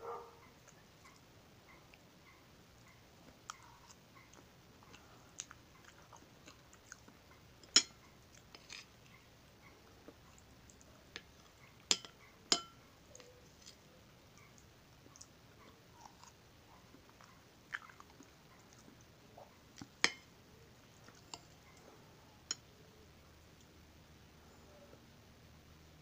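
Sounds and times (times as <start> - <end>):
man chewing cake: 2.7 - 12.0, 13.1 - 22.7
metal fork clinking: 11.9 - 12.8.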